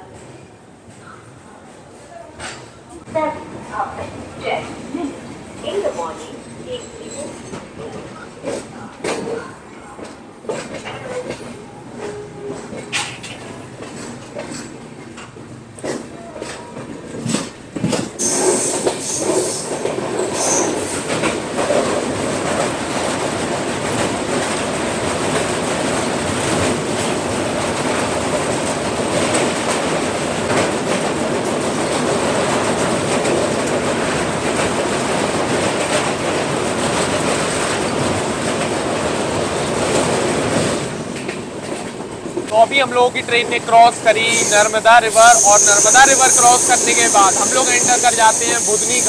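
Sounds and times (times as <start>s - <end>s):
train wheels rumbling on rails: 0.0s - 49.0s.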